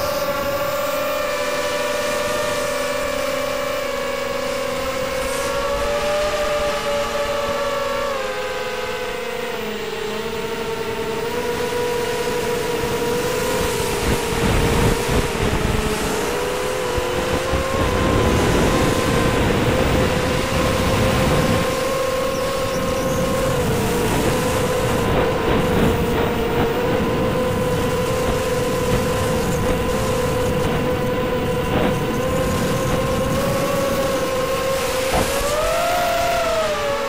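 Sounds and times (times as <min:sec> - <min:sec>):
quadcopter motors whining: 0:00.0 - 0:37.0
wind buffeting microphone: 0:10.9 - 0:37.0.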